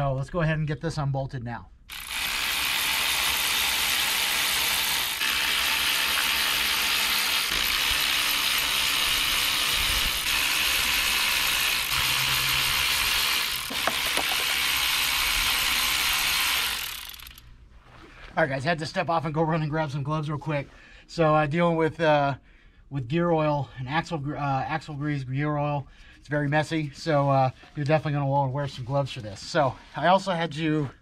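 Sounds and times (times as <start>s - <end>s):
ratchet wrench spinning bolts: 1.9s - 5.4s, 7.4s - 17.4s.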